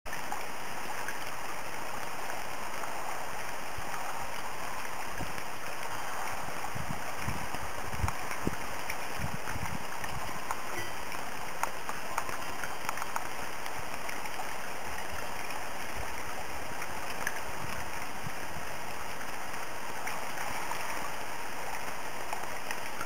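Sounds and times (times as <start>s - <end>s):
fountain water trickling and splashing: 0.1s - 23.0s.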